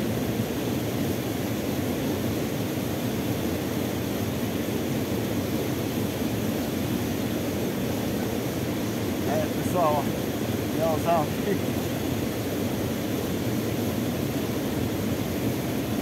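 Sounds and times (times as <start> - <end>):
water rushing over waterfall: 0.0 - 16.0.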